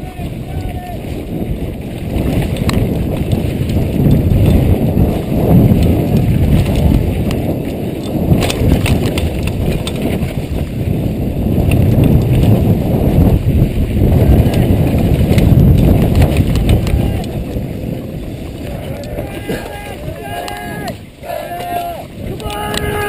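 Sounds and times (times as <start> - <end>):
bike tyres rumbling over dirt: 0.0 - 23.0
bike chain and frame clattering: 2.2 - 10.7.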